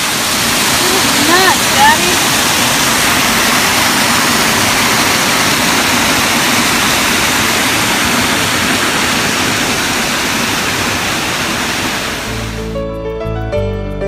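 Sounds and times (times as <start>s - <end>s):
waterfall rushing over rocks: 0.0s - 12.6s.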